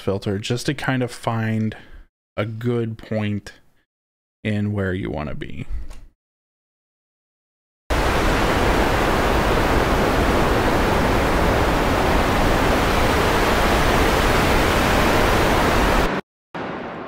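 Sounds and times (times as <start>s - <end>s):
synthesized rushing noise: 7.9s - 17.0s.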